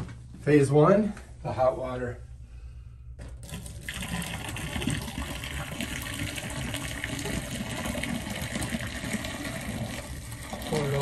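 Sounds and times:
hot water pouring into a drain: 3.4s - 11.0s.

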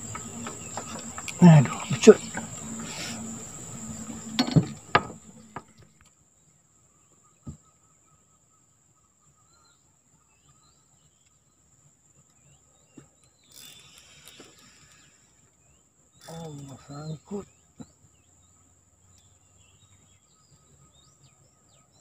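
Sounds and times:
high insect whine: 0.0s - 6.1s, 13.4s - 17.6s
fishing reel clicks and knocks: 13.5s - 15.3s.

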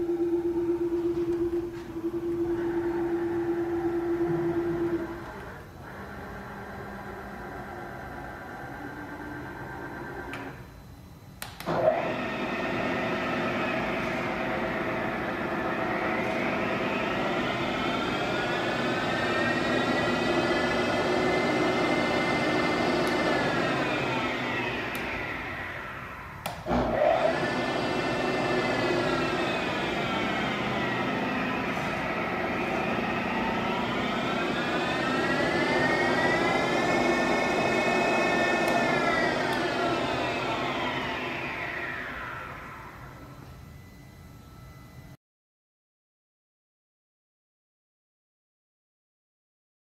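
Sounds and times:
mill spindle whine changing pitch: 0.0s - 45.2s
machine starting click: 37.7s - 40.4s.

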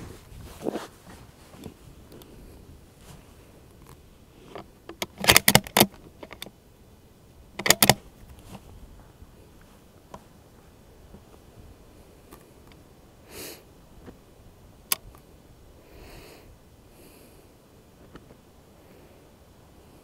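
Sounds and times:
rifle bolt metallic clicks: 4.9s - 6.5s, 7.6s - 8.0s.

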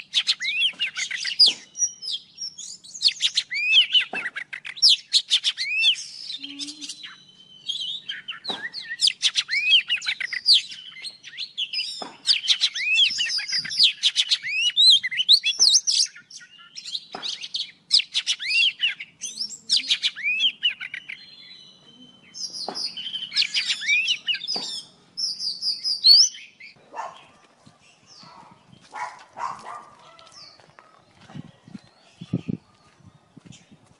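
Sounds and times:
birds singing whistles: 0.0s - 33.9s.

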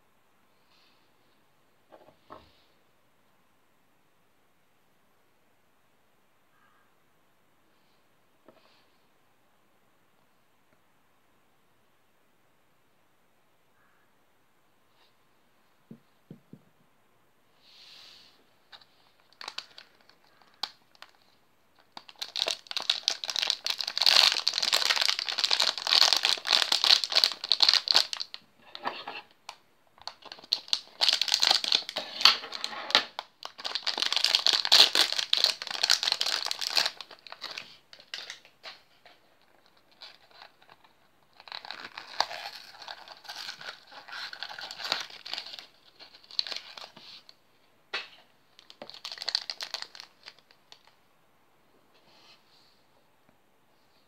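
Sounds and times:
foil packet crinkling: 18.7s - 28.4s, 30.0s - 47.3s, 48.6s - 51.0s.

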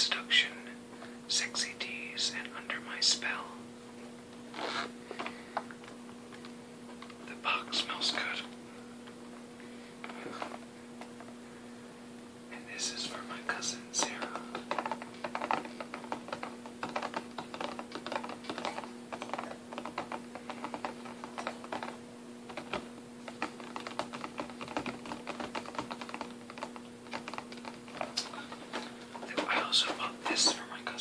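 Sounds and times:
fingers tapping on cardboard box: 14.0s - 28.2s.

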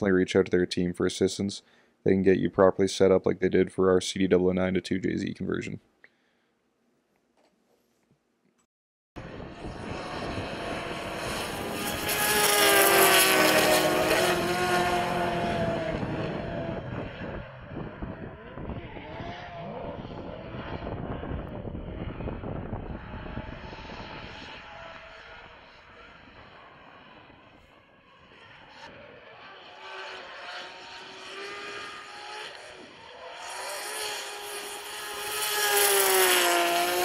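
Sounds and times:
car engine revving hard: 9.5s - 20.9s, 29.2s - 37.0s.

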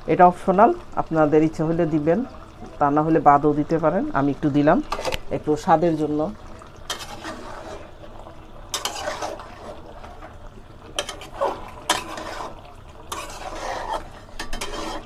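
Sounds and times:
metal spatula scraping a pot: 4.8s - 5.3s, 6.9s - 8.0s, 8.7s - 10.1s, 10.9s - 15.0s.

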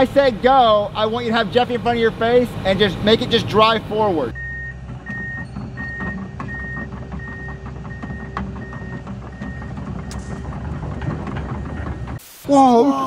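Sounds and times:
low diesel engine: 0.0s - 12.2s
excavator travel alarm beeping: 3.8s - 12.2s
machine clicks and rattles: 4.7s - 12.2s.

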